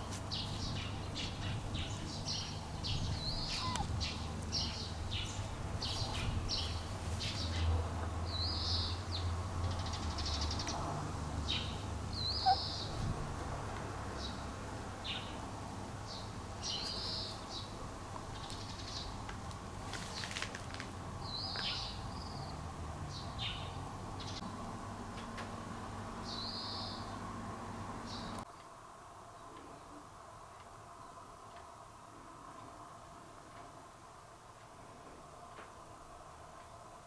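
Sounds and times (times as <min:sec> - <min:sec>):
small birds chirping: 0:00.0 - 0:10.8, 0:11.4 - 0:13.1, 0:16.1 - 0:19.2, 0:21.2 - 0:24.6, 0:26.2 - 0:27.3, 0:28.0 - 0:28.7.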